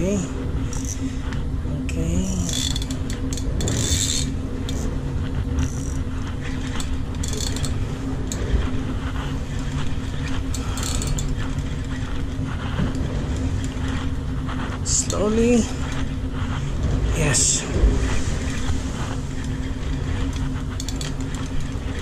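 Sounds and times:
low machinery hum: 0.0s - 22.0s
fishing reel whirring and clicking: 0.7s - 1.4s, 2.4s - 4.9s, 5.6s - 13.0s, 18.4s - 22.0s.

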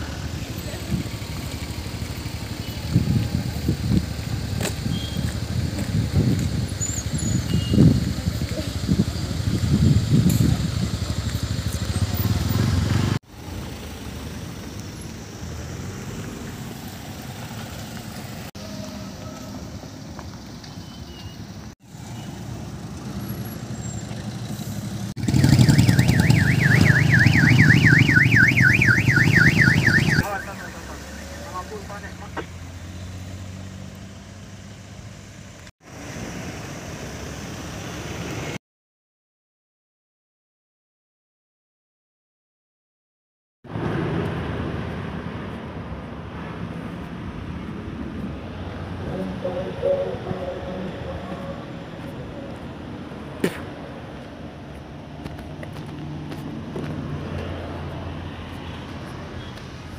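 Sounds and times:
low traffic noise: 0.0s - 38.6s
motor vehicle rumbling: 0.0s - 38.6s, 43.7s - 59.9s
ambulance siren warbling: 25.2s - 32.5s, 49.1s - 51.8s.

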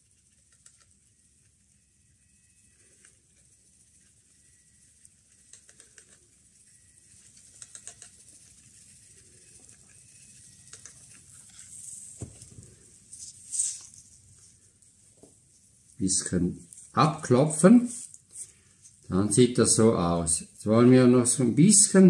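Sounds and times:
faint ticking and pattering: 0.0s - 19.7s
rustle of handled bush: 2.8s - 19.8s.

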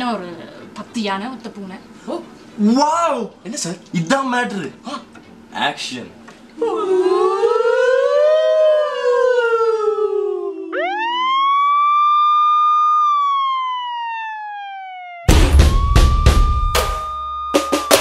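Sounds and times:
siren-like wailing tones: 6.8s - 18.0s
loud drum hits: 15.3s - 18.0s.

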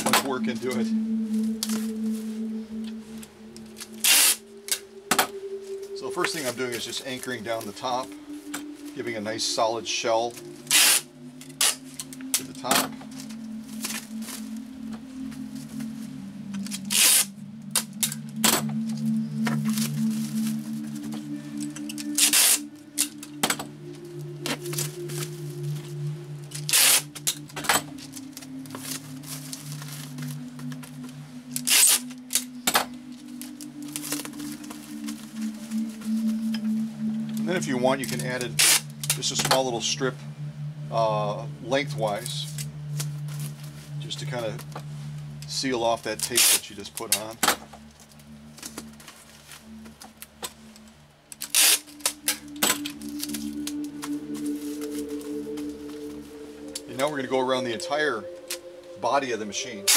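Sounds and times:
soft background music: 0.0s - 59.9s
plastic wrap and tape crackling: 10.3s - 23.3s, 24.2s - 36.8s, 46.2s - 55.8s
tape ripping off tape gun: 31.6s - 32.0s.

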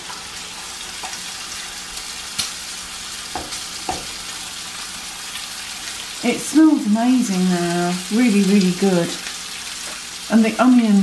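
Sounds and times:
food sizzling in frying pan: 0.0s - 11.0s
spatula scraping and knocking pan: 3.3s - 4.3s.

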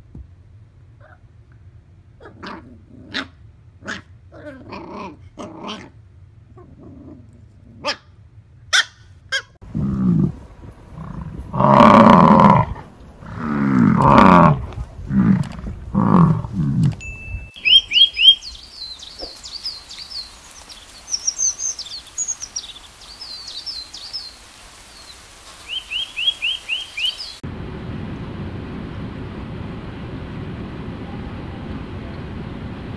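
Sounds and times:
dog growling and barking: 2.2s - 8.1s, 9.4s - 17.0s
faint hiss: 9.6s - 32.9s
quick high chirps: 17.0s - 18.6s.

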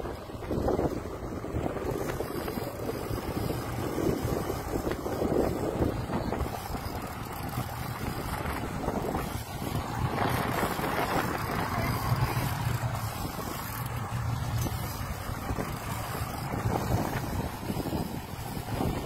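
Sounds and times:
outboard motors humming: 0.0s - 19.0s
wind buffeting microphone: 0.0s - 19.0s.

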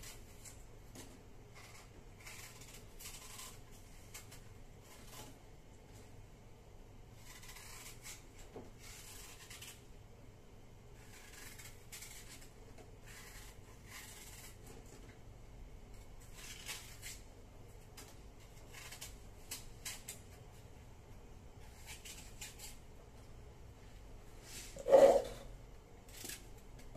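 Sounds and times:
faint rubbing strokes: 24.3s - 25.5s.

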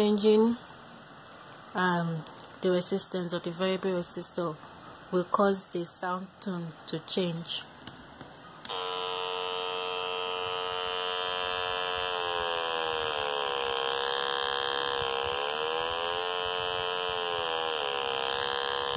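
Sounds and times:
speaker buzzing tone: 8.6s - 18.9s.

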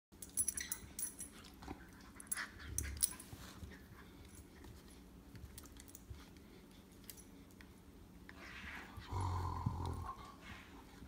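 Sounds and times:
dogs scuffling and mouthing: 0.2s - 8.6s.

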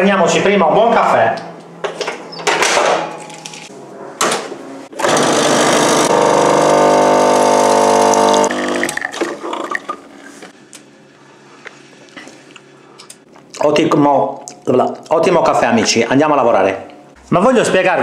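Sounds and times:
espresso machine pump buzzing: 5.0s - 9.0s
espresso pouring into a cup: 6.2s - 9.0s.

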